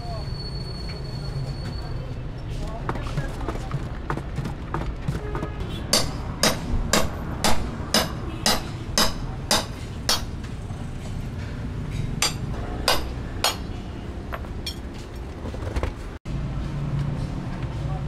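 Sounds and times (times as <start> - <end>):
hammer blows: 4.1 - 10.5, 11.9 - 13.8.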